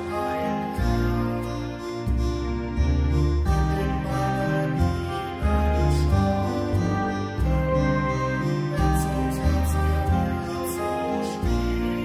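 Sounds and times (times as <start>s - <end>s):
song with long held chords: 0.0s - 12.0s.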